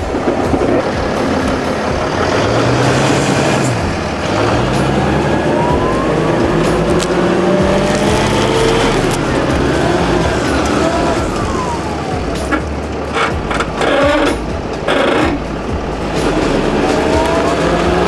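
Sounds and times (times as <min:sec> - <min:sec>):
motorhome engine revving: 0:00.0 - 0:18.0
rising whine: 0:00.0 - 0:18.0.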